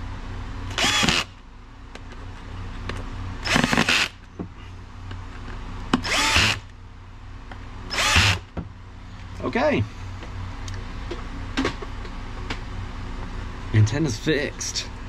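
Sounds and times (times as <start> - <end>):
cordless drill driving screws: 0.7 - 1.3, 3.4 - 4.2, 6.0 - 6.7, 7.9 - 8.5.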